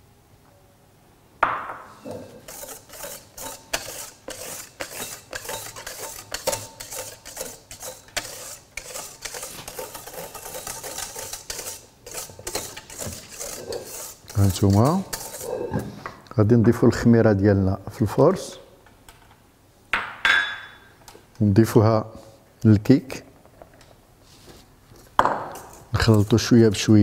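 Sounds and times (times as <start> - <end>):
wire whisk beating batter in metal bowl: 2.4 - 15.7.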